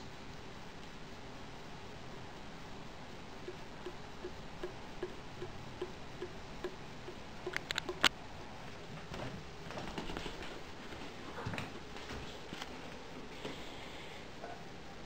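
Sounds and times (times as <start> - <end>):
sharp clicks: 3.5 - 8.2.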